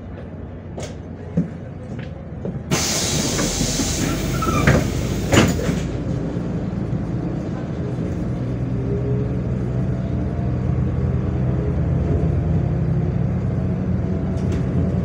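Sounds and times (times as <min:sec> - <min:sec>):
bus engine rumbling: 0:00.0 - 0:15.0
bus doors air hiss: 0:02.7 - 0:05.9.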